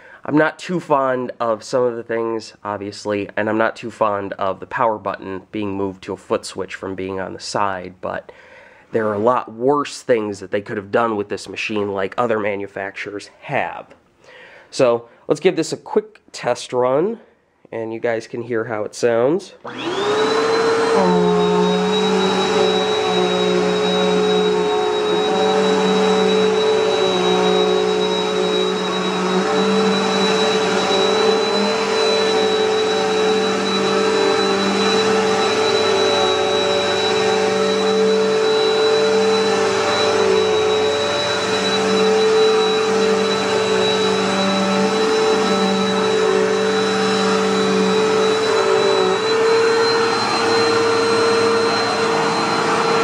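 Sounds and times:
vacuum cleaner motor whine: 19.6 - 53.0.

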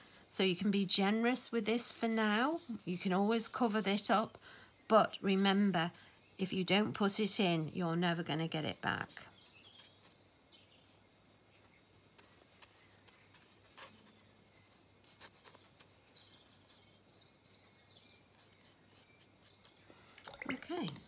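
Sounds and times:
faint bird chirps: 9.2 - 21.0.

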